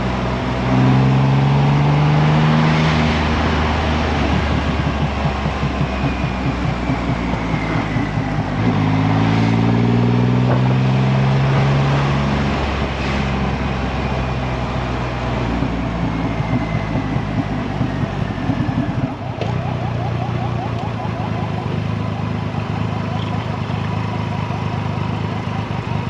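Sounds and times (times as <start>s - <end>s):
motorcycle engine running: 3.0s - 26.0s.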